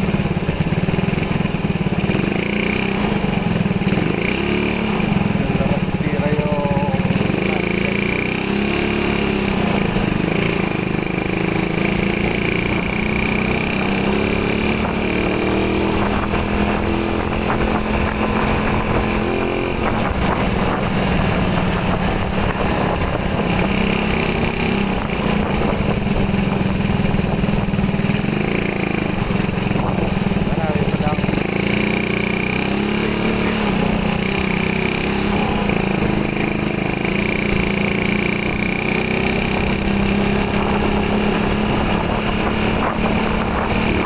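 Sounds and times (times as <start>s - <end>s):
motorcycle engine running: 0.0s - 44.0s
wind and road rush: 0.0s - 44.0s.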